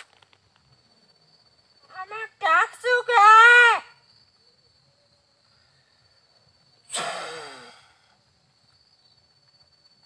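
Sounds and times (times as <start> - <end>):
person sighing heavily: 6.9 - 8.2.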